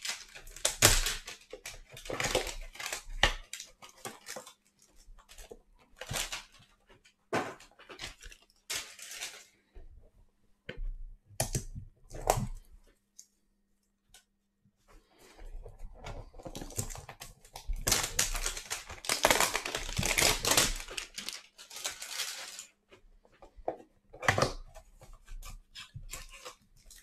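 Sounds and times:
cellophane crinkling and tearing: 0.0 - 9.7, 16.2 - 23.0, 24.2 - 27.0.

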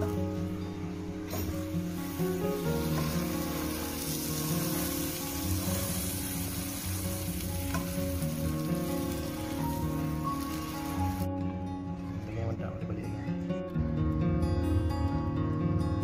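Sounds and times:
butter sizzling in frying pan: 1.3 - 11.3.

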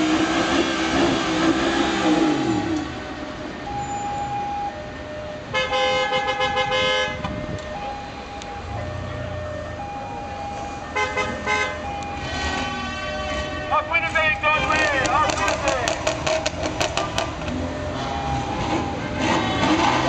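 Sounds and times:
car horns tooting: 5.5 - 7.3, 10.9 - 17.2, 18.5 - 20.0
car engines running low: 7.2 - 20.0.

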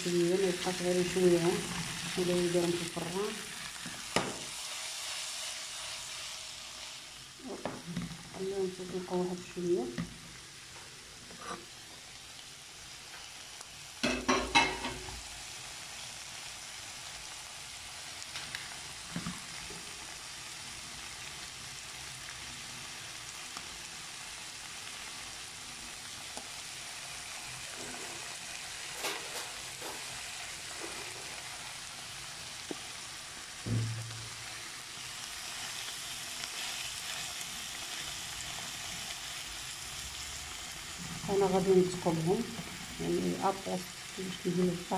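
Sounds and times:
sausages sizzling in oil: 0.0 - 44.9
thump: 4.2 - 4.5, 33.6 - 34.4.

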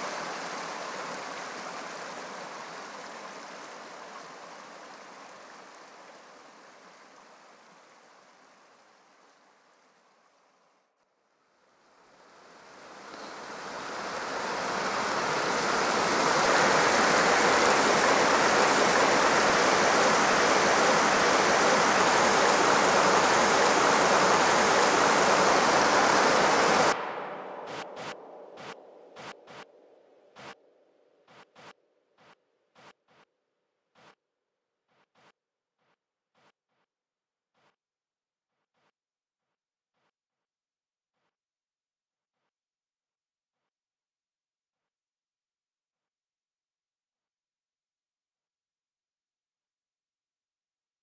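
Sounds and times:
creek water rushing over rocks: 0.0 - 10.6, 12.0 - 29.7.

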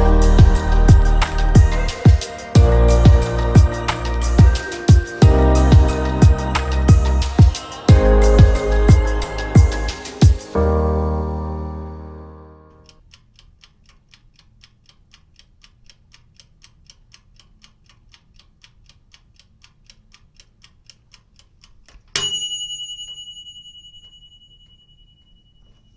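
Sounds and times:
faint clock ticking: 0.0 - 10.6, 12.8 - 25.9
bright bell ding: 22.2 - 25.9.

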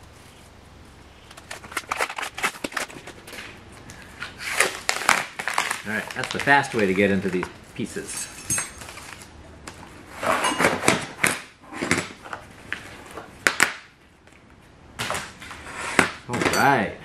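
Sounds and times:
plastic shrink wrap rustling: 1.3 - 13.7
steel plates clinking: 8.0 - 9.0.

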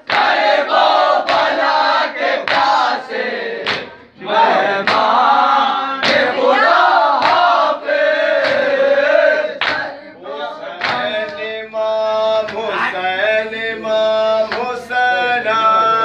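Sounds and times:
men chanting together: 0.0 - 16.0
hands slapping chests: 2.4 - 2.8, 3.6 - 4.0, 4.8 - 5.1, 6.0 - 6.4, 7.2 - 7.6, 8.4 - 8.8, 9.6 - 9.9, 10.8 - 11.4.

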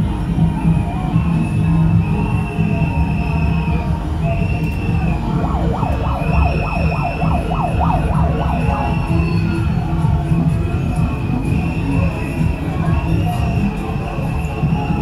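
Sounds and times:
parade crowd rumble: 0.0 - 15.0
siren-like warble: 4.8 - 10.0
high tone blasts: 4.9 - 9.8.

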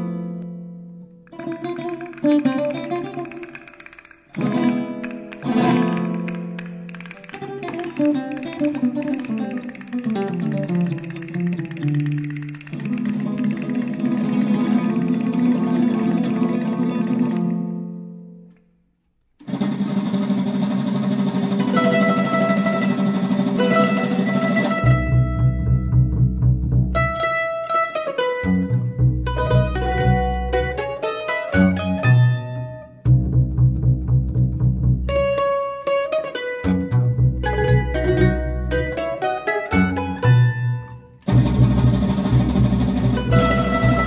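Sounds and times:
plucked string ensemble: 0.0 - 18.7, 19.4 - 44.0
loud strummed chords: 4.3 - 18.2, 19.4 - 44.0
double bass notes: 21.6 - 44.0.

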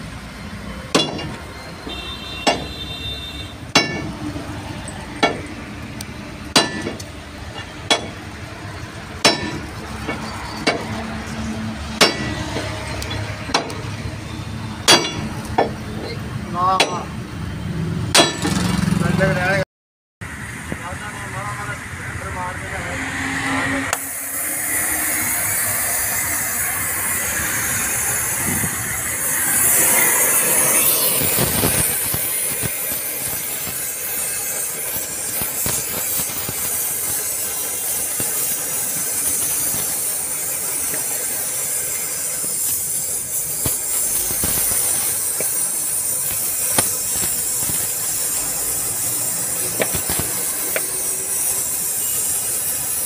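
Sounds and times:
cutting torch hissing: 20.3 - 53.0
sharp pops: 30.8 - 37.3, 43.6 - 48.3, 49.7 - 50.9.

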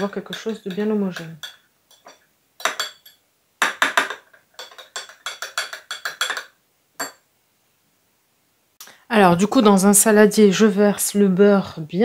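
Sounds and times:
metal spoon clinking in glass: 0.0 - 7.2.

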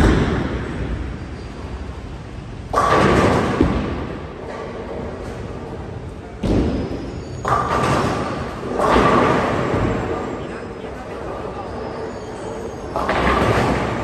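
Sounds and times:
bowling alley din: 0.0 - 14.0
bowling pins crashing: 2.7 - 4.4, 6.4 - 10.3.

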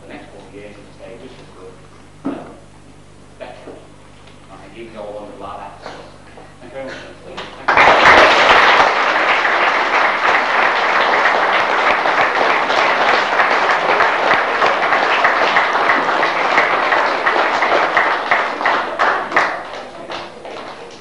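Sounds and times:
audience applauding: 7.4 - 21.0.

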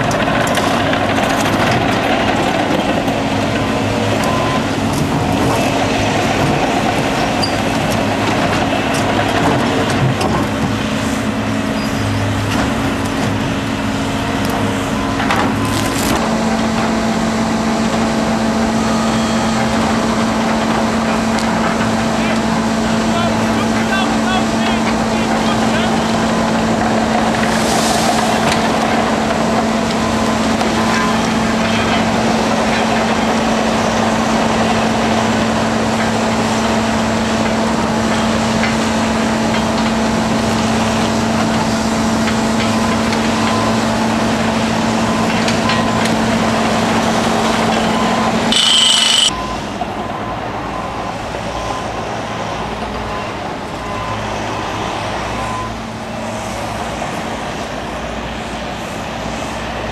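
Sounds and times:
diesel engine humming: 0.0 - 42.2
high-pitched burst: 48.5 - 49.3.

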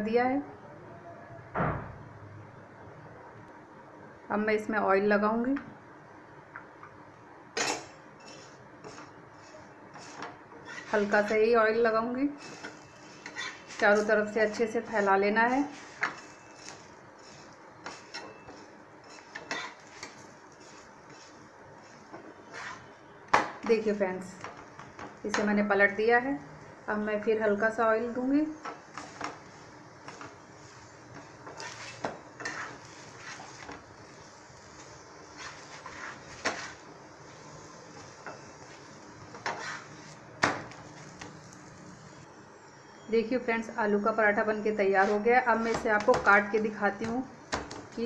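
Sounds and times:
spatula scraping a griddle: 7.6 - 23.0, 28.4 - 42.2, 44.8 - 46.2.

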